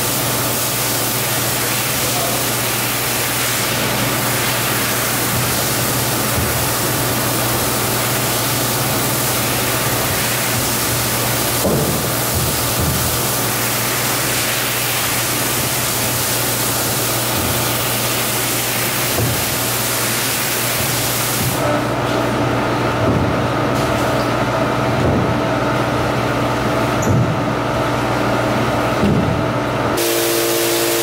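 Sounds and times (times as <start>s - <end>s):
pressure washer spray hiss: 0.0s - 21.6s, 30.0s - 31.0s
low machine hum: 20.7s - 31.0s.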